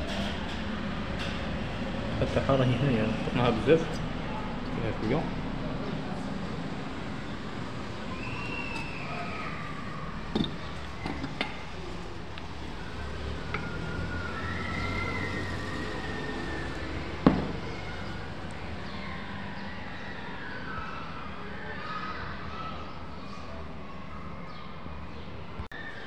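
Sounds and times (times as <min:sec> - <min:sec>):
siren wailing: 0:08.1 - 0:11.2, 0:12.6 - 0:21.8
metal tool clicks and knocks: 0:10.3 - 0:11.6.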